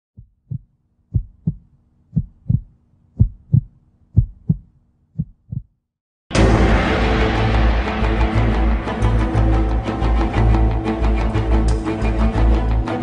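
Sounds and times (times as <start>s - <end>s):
heartbeat thumps: 0.2s - 5.8s.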